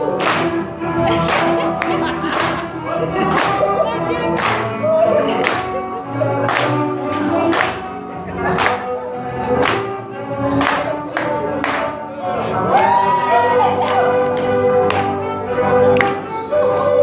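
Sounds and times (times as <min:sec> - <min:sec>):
dance music: 0:00.0 - 0:17.0
voices singing: 0:00.0 - 0:17.0
sharp hand claps: 0:00.2 - 0:00.6, 0:06.4 - 0:07.9, 0:13.8 - 0:15.2.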